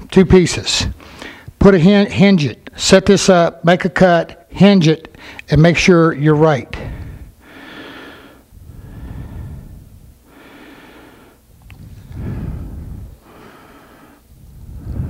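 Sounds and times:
man breathing close to microphone: 0:00.8 - 0:01.6, 0:05.1 - 0:05.5, 0:06.8 - 0:15.0.

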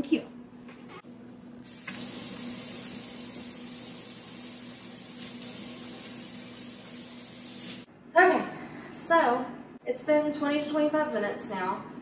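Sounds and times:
faucet water splashing into sink: 0:01.7 - 0:07.9.

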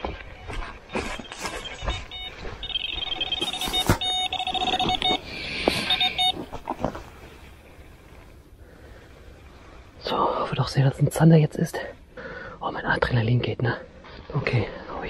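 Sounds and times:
electronic bite alarm beeping: 0:00.4 - 0:06.5
rustling: 0:00.9 - 0:08.4.

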